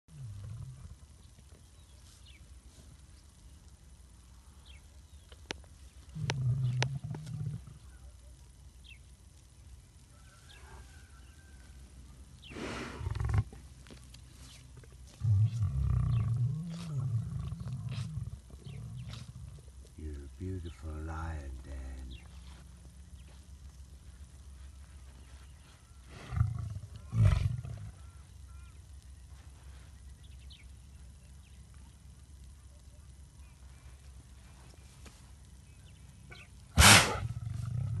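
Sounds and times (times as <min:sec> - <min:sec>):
lion sneezing: 0:36.3 - 0:37.3.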